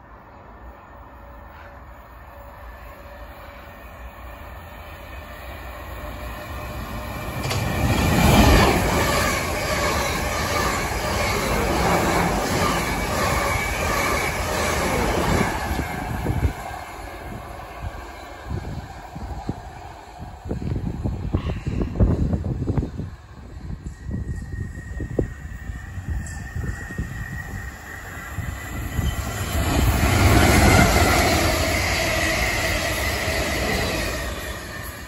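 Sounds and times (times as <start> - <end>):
electric train passing at speed: 0.0 - 35.0.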